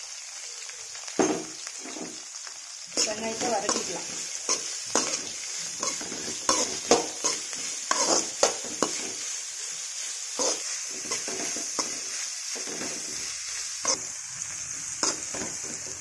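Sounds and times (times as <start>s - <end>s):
vegetables sizzling in hot oil: 0.0s - 16.0s
spatula scraping and knocking a pan: 1.2s - 2.2s, 3.0s - 9.3s, 10.4s - 14.1s, 15.0s - 16.0s.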